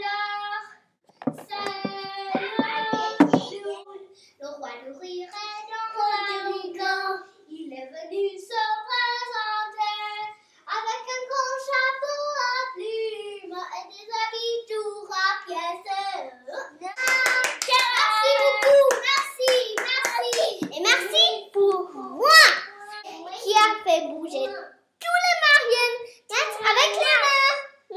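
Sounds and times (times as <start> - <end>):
girl singing unaccompanied: 0.0 - 24.8.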